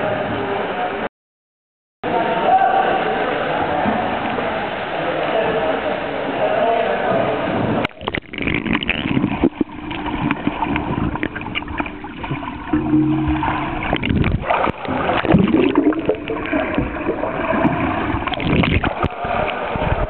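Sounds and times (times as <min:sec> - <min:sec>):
muffled underwater rushing: 0:07.8 - 0:20.0
low hum: 0:07.9 - 0:20.0.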